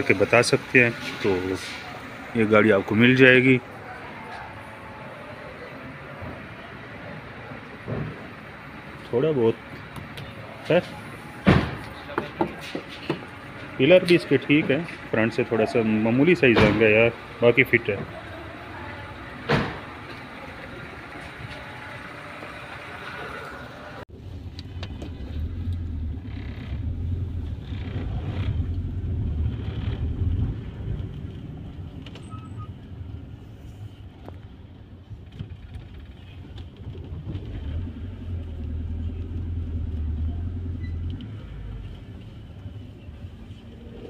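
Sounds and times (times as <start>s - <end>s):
car engine and road rumble: 0.0s - 44.0s.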